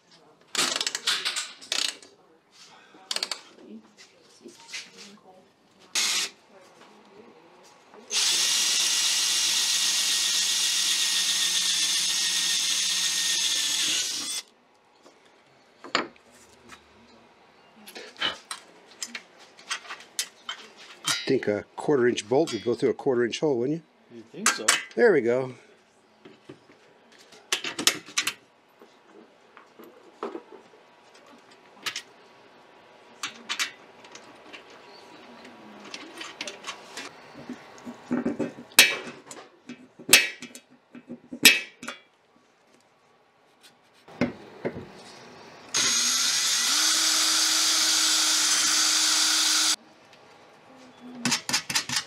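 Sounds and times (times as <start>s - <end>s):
cordless drill boring metal: 6.0s - 6.3s, 8.1s - 14.5s, 45.7s - 49.8s.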